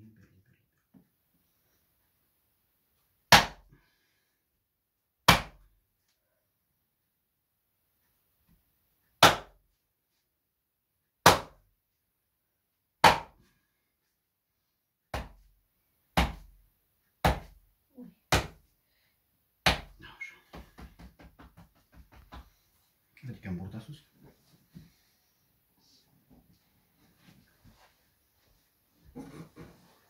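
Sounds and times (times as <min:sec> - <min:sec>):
fist striking hand on back: 0:03.3 - 0:03.6, 0:05.3 - 0:05.6, 0:09.2 - 0:09.6, 0:11.2 - 0:11.6, 0:13.0 - 0:13.4, 0:18.3 - 0:18.6.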